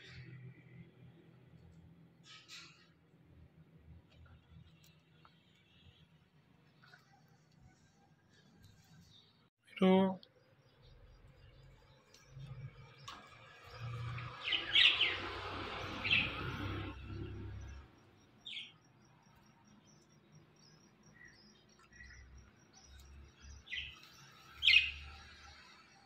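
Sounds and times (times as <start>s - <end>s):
parakeets chirping: 14.1s - 17.8s, 20.3s - 25.2s.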